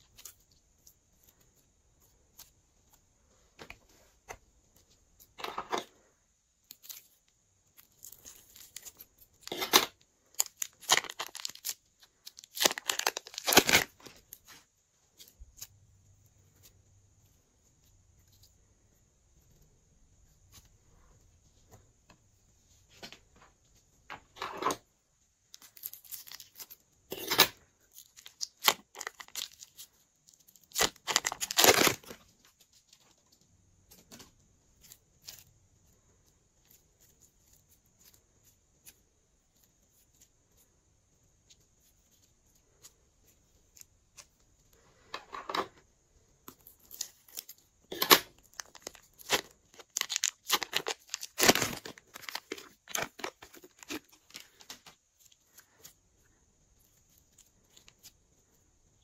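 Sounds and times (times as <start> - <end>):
plastic bags crinkling: 7.8 - 14.4, 25.5 - 32.3, 46.6 - 55.9.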